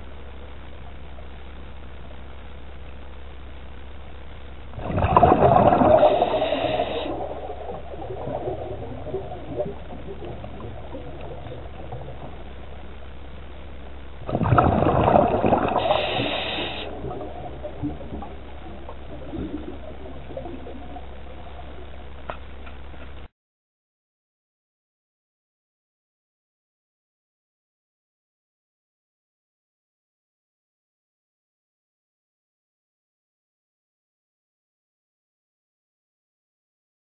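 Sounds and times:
regulator hiss: 0.0 - 23.3
steady low hum: 0.0 - 23.3
diver exhaling bubbles: 4.8 - 12.5, 14.2 - 22.0.

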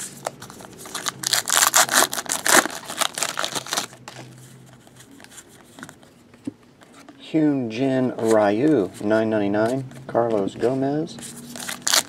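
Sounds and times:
foil wrapper tearing and crinkling: 0.8 - 4.1, 11.5 - 12.0.

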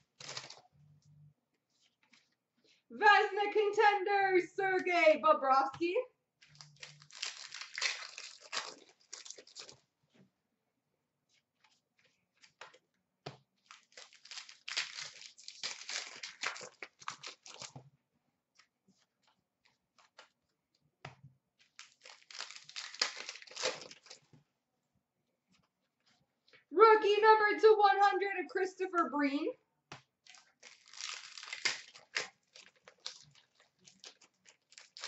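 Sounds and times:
card pack wrappers tearing: 0.0 - 0.6, 6.4 - 9.8, 13.6 - 17.8, 21.6 - 24.2, 30.3 - 35.0
cards being handled: 0.0 - 0.6, 6.4 - 9.8, 11.4 - 17.8, 21.0 - 24.3, 29.9 - 35.0.

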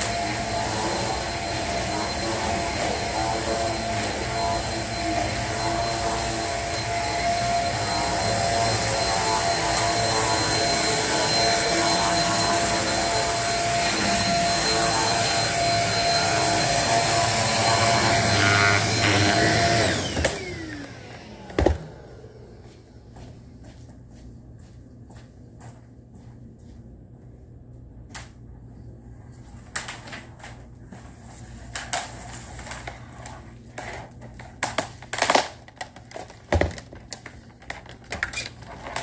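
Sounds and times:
vacuum cleaner motor whine: 0.0 - 23.0, 37.6 - 39.0.

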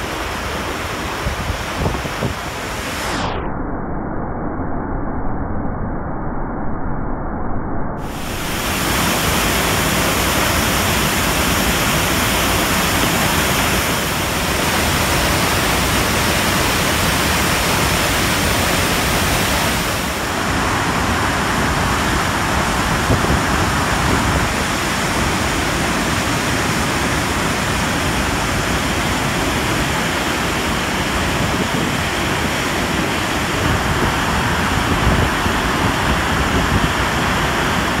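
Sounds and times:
waterfall crashing onto rocks: 8.0 - 38.0.

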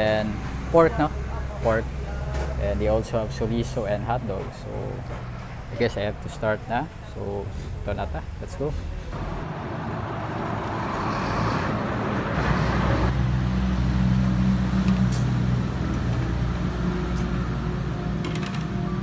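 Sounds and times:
low engine hum: 0.0 - 19.0
road traffic noise: 0.0 - 19.0.

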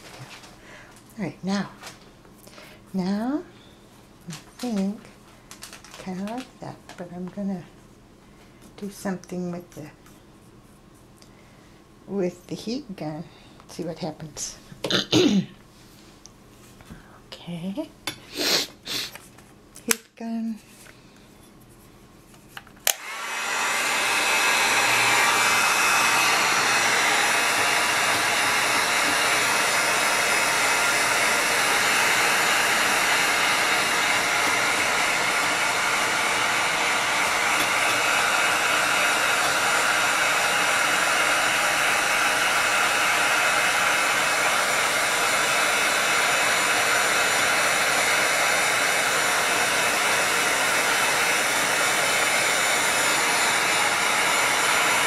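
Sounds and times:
heat gun fan blowing: 18.0 - 55.0
heat gun switch click: 22.8 - 23.1.

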